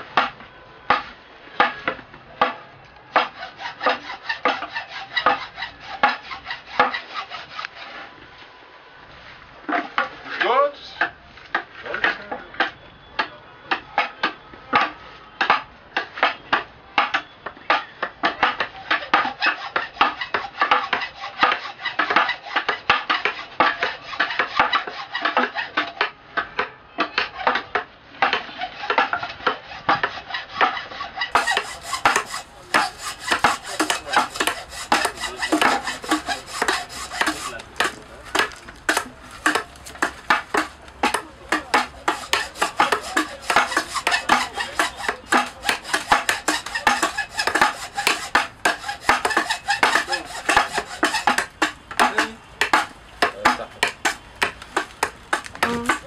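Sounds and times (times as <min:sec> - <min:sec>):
carving tools cutting hardwood: 0:01.6 - 0:08.1, 0:18.2 - 0:25.8, 0:28.2 - 0:56.0.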